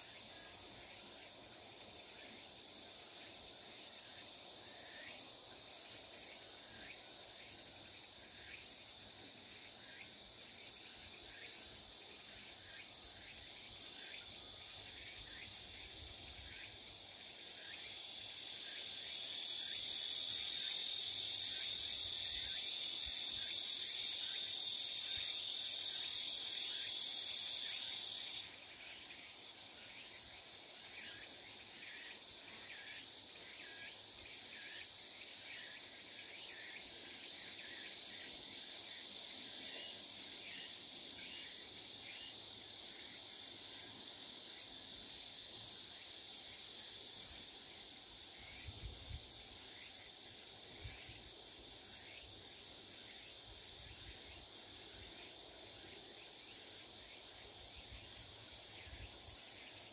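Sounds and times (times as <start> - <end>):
loud high insect buzz: 0.0 - 59.9
short insect chirp: 0.0 - 59.9
soft insect hum: 0.0 - 59.9.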